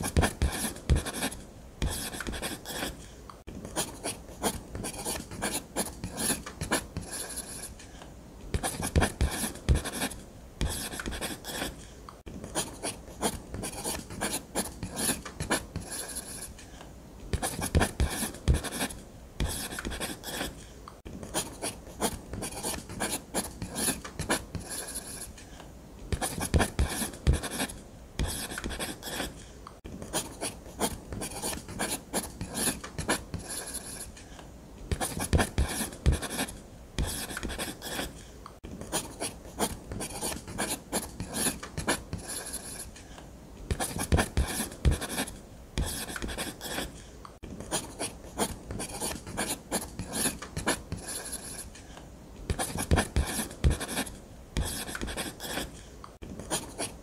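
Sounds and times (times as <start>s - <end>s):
pen scratching on paper: 0.0s - 3.1s, 3.7s - 7.8s, 8.5s - 16.6s, 17.3s - 20.7s, 21.3s - 25.4s, 26.1s - 29.4s, 30.0s - 34.2s, 34.9s - 38.2s, 38.8s - 43.0s, 43.7s - 47.0s, 47.6s - 51.7s, 52.5s - 55.8s, 56.5s - 57.0s.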